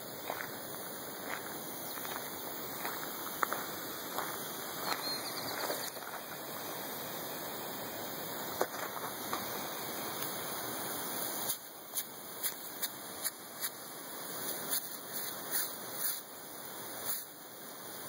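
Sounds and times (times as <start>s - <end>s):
sprinkler water jet hissing: 0.0s - 18.0s.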